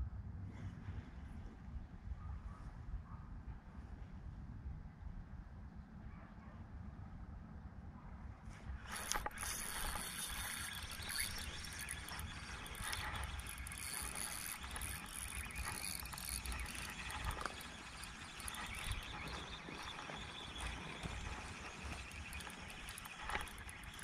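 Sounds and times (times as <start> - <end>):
fishing reel whirring: 8.8 - 24.0.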